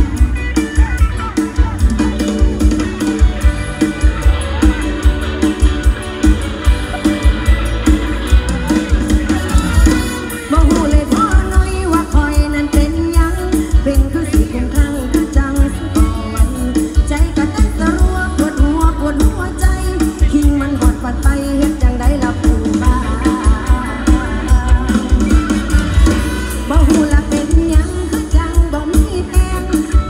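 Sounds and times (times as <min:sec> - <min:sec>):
heavy drum beat: 0:00.0 - 0:30.0
live band playing through pa: 0:00.0 - 0:30.0
person singing: 0:08.3 - 0:30.0.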